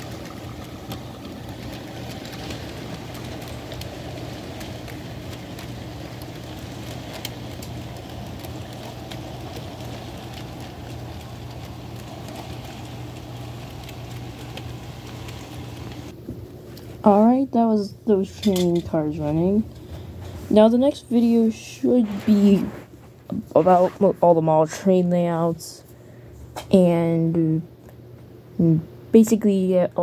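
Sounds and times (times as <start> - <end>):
model train wheels rolling: 0.0 - 16.2, 17.0 - 22.8
constant low hum: 0.0 - 30.0.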